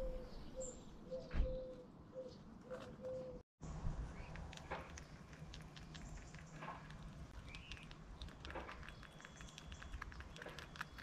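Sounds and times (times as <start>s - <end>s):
squirrel chewing nuts: 4.1s - 11.0s.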